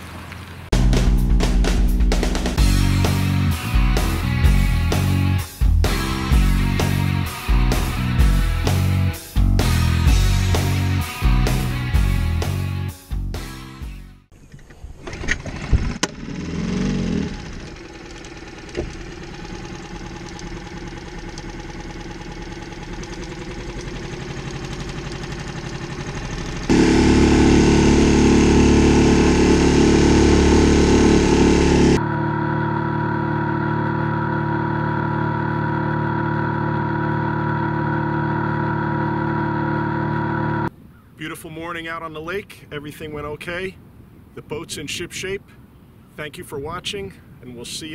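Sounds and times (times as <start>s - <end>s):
outboard motor running: 15.1s - 40.7s.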